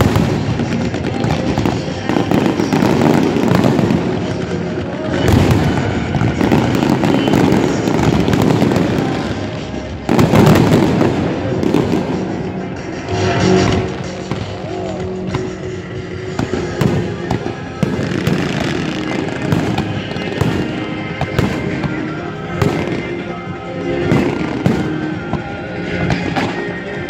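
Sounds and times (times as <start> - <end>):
fireworks exploding: 0.0 - 27.0.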